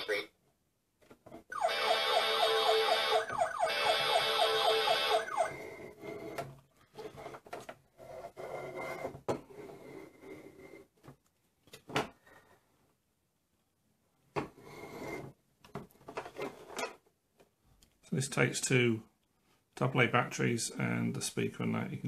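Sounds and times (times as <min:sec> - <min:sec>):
toy fire truck siren: 0:01.5 - 0:05.7
plastic toy rubbing on table: 0:07.0 - 0:10.9.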